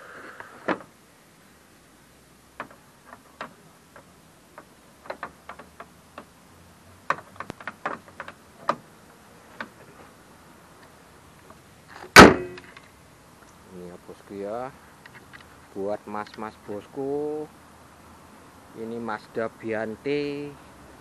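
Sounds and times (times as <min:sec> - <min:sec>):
car bonnet slamming shut: 0:12.1 - 0:12.7.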